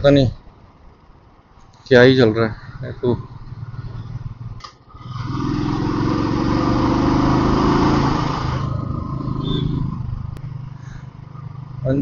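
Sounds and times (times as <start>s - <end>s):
loud rushing noise: 2.6s - 11.1s
motorcycle engine running: 3.1s - 12.0s.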